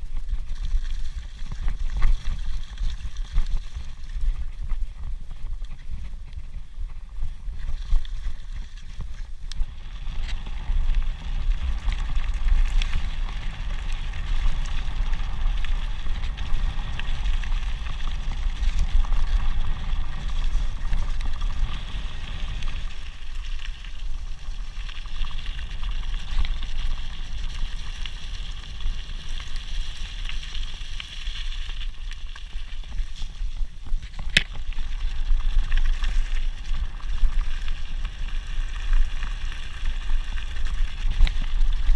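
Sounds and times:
bike tyres crunching on gravel: 0:00.0 - 0:41.9
wind rumble on microphone: 0:00.0 - 0:41.9.

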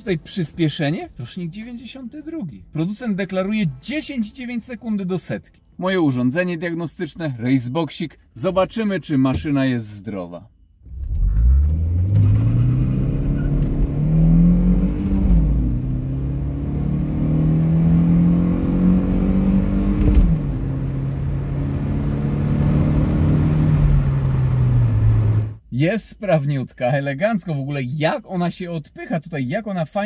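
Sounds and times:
car engine accelerating: 0:10.8 - 0:25.6.

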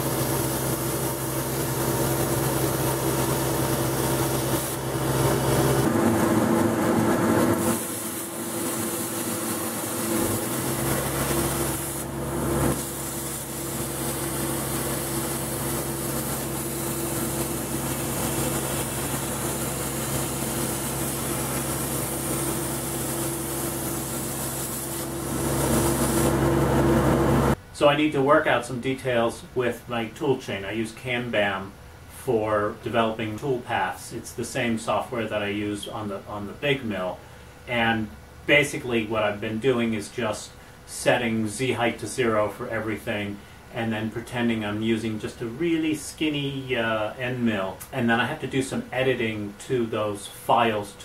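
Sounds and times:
extraction blower humming: 0:00.0 - 0:27.6
plasma cutter hissing: 0:00.0 - 0:27.6.

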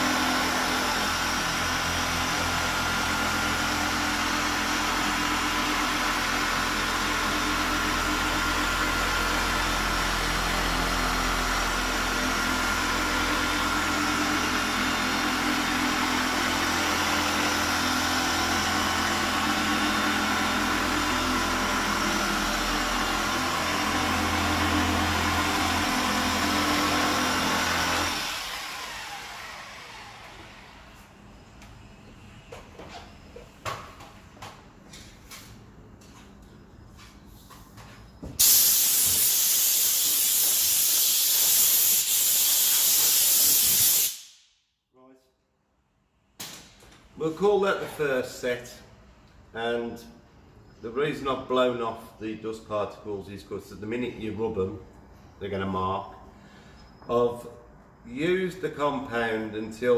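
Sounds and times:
polisher winding down: 0:00.0 - 0:31.7
electric polisher whine: 0:00.0 - 0:33.5, 0:38.2 - 0:43.1.

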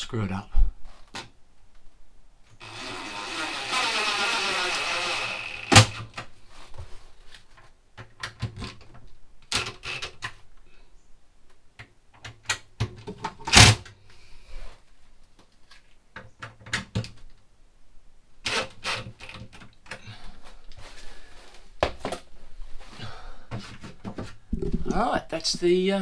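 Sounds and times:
cordless drill boring: 0:02.6 - 0:06.2.

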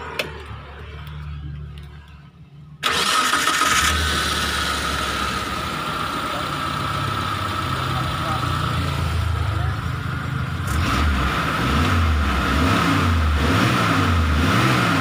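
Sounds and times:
engine starting and running: 0:00.0 - 0:09.3.

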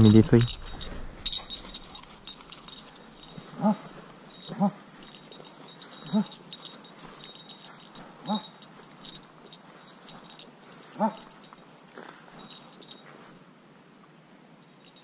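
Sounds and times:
puppy crying: 0:03.4 - 0:04.8.

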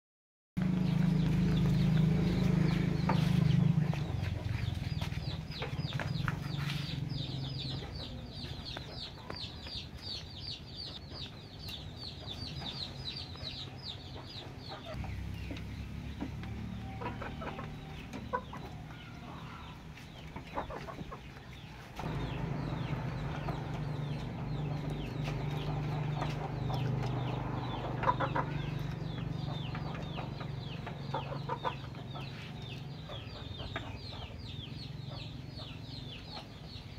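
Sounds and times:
chickens clucking: 0:00.6 - 0:36.9
steady low hum: 0:22.0 - 0:33.8.

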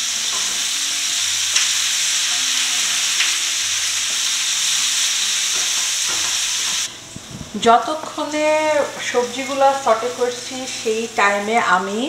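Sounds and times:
vegetables sizzling in frying pan: 0:00.0 - 0:12.0.

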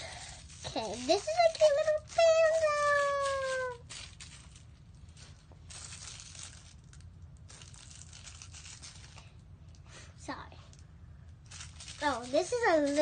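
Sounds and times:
fingers squeezing soft toy: 0:00.4 - 0:04.5
child's voice: 0:00.6 - 0:03.8, 0:10.2 - 0:10.7, 0:12.0 - 0:13.0.

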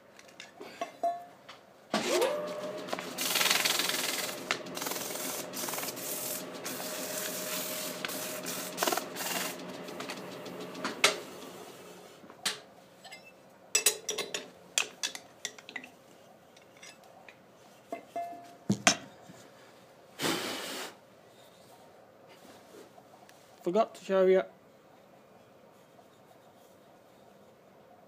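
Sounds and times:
wood lathe humming: 0:02.0 - 0:12.2
sandpaper rubbing on wood: 0:02.9 - 0:09.7.

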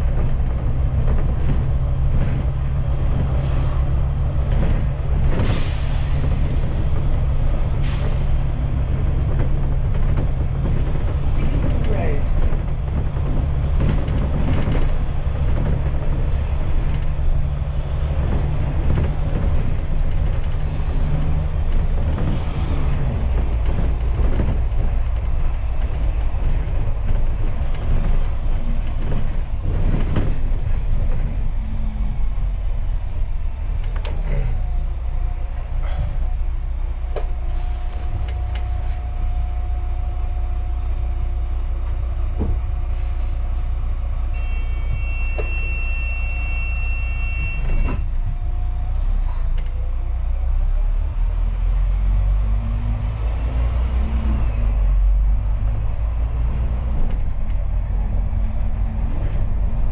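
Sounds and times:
bus engine drone: 0:00.0 - 0:59.9
road rumble: 0:00.0 - 0:59.9
high brake squeal: 0:31.7 - 0:38.2, 0:44.3 - 0:48.0.

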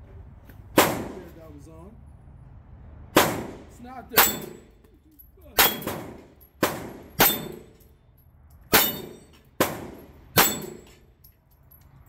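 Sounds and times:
pistol shots: 0:00.8 - 0:01.3, 0:03.2 - 0:04.7, 0:05.6 - 0:07.7, 0:08.7 - 0:10.9
steel target clanging: 0:04.1 - 0:08.0, 0:08.7 - 0:11.1.

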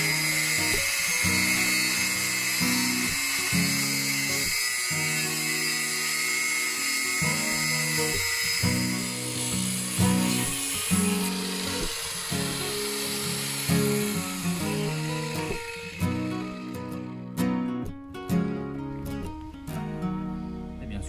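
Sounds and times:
power tool cutting metal tube: 0:00.0 - 0:17.6
background music with low chords: 0:07.4 - 0:21.0.

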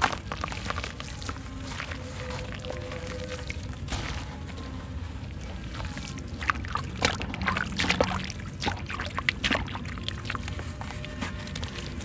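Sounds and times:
grit splashing into water: 0:00.0 - 0:04.3, 0:05.6 - 0:10.6
cement chunks crumbling: 0:00.0 - 0:12.0.

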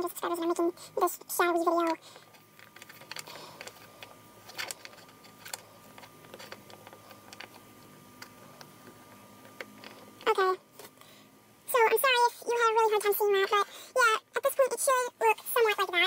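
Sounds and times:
small clicks and rustles: 0:01.8 - 0:11.0.

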